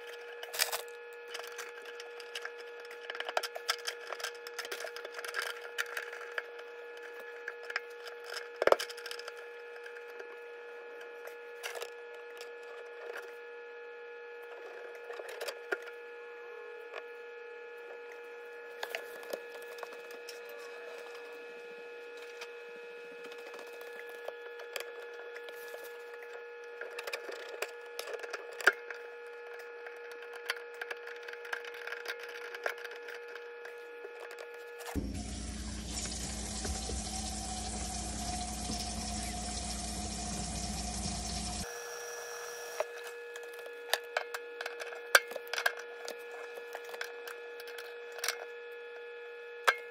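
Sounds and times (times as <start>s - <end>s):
steady hum: 35.0s - 41.7s
water rushing through sink drain: 35.0s - 41.7s.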